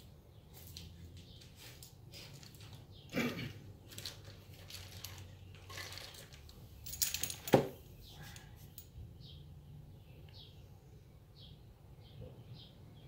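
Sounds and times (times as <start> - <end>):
metal hardware clinks and knocks: 6.3 - 7.8.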